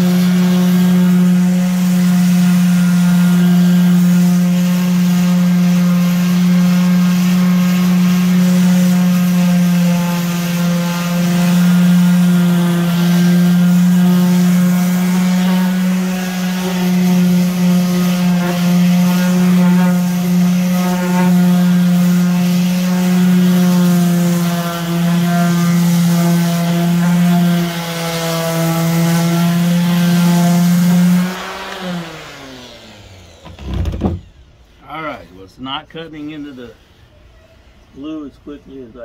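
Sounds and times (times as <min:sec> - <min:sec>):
sander spinning down: 0:00.0 - 0:34.6
electric sander on wood: 0:00.0 - 0:35.2.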